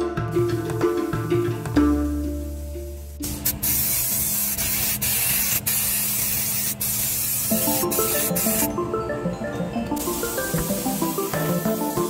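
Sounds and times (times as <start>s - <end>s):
background music: 0.0s - 4.4s, 7.4s - 12.0s
spray hissing: 0.4s - 8.7s, 10.0s - 12.0s.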